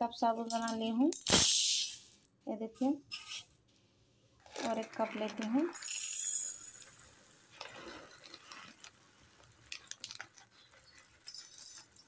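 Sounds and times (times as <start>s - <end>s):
pearls pouring into a steel cup: 4.5s - 12.0s.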